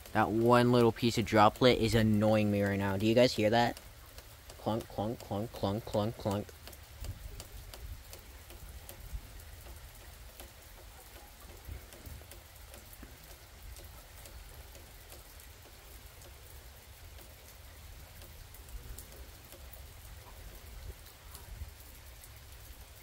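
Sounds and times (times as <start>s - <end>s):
raindrops ticking on a surface: 0.0s - 23.0s
steady rain: 0.0s - 23.0s.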